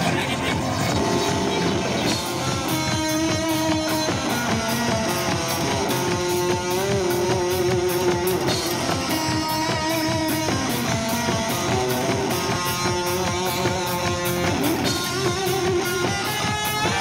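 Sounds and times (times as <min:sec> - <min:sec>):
guitars playing held notes: 0:00.0 - 0:17.0
steady drum beat: 0:00.0 - 0:17.0.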